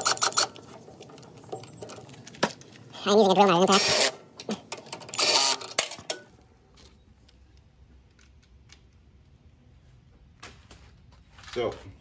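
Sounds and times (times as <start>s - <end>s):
impact driver running: 3.7s - 4.2s.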